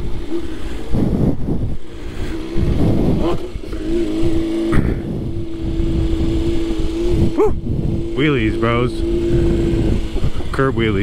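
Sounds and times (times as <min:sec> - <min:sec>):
motorcycle engine accelerating: 0:00.0 - 0:11.0
wind rush: 0:00.0 - 0:11.0.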